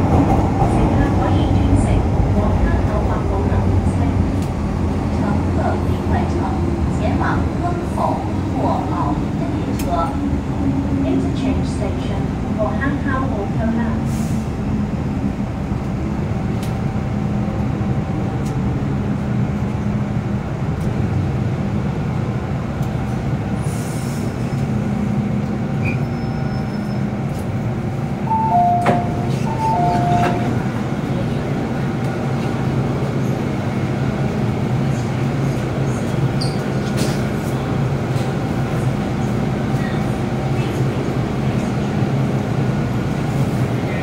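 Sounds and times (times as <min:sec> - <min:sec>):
train motors and wheels rumbling: 0:00.0 - 0:44.0
train doors opening: 0:25.4 - 0:27.6, 0:28.2 - 0:33.5, 0:34.2 - 0:40.8.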